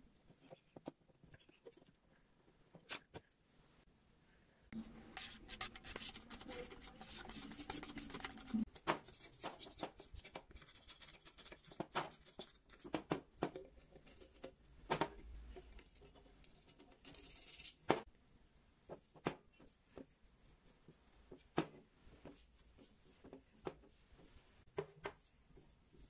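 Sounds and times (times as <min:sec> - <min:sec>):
rubbing and handling noise: 0:04.7 - 0:18.0.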